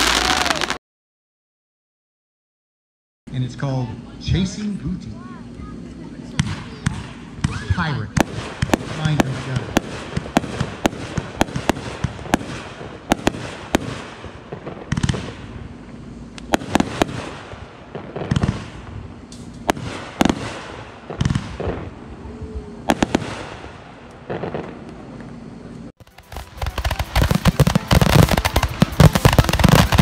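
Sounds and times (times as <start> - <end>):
firework cake firing: 0.0 - 0.8, 6.1 - 25.0, 26.0 - 30.0.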